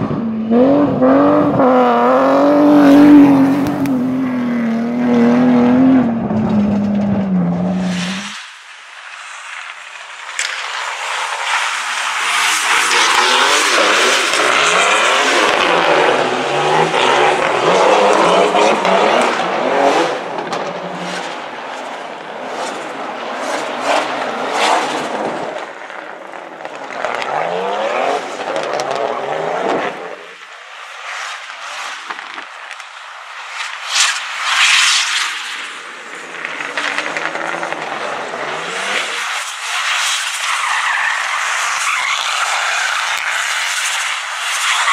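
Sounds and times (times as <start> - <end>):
rally car engine revving: 0.0 - 8.4, 11.2 - 21.6, 22.4 - 30.4, 36.2 - 40.0, 40.9 - 44.9.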